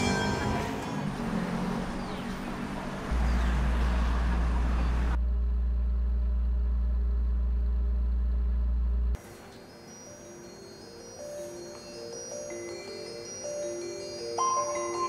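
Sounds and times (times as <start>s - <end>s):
city traffic noise: 0.0s - 9.5s
loud deep low hum: 4.2s - 9.2s.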